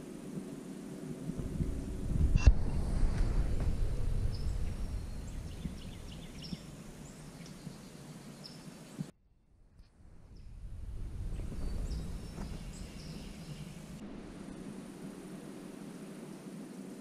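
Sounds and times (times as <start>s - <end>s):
wind rumble on microphone: 0.0s - 17.0s
faint high bird chirps: 11.4s - 13.9s.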